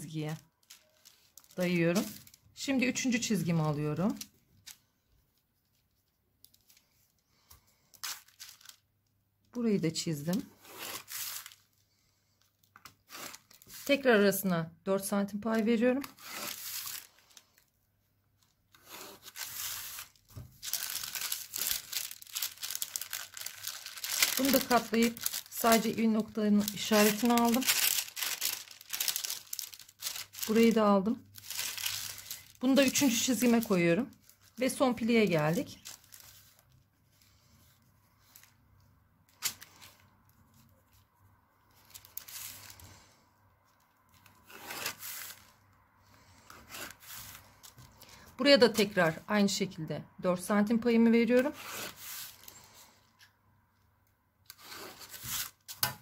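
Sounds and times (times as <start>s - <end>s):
paper rustling and crinkling: 0.5s - 2.4s, 3.7s - 8.8s, 10.2s - 14.1s, 16.0s - 17.7s, 18.4s - 38.6s, 41.7s - 45.6s, 46.2s - 49.0s, 51.4s - 52.9s, 54.5s - 56.0s
paper rubbing and rustling: 18.7s - 30.8s.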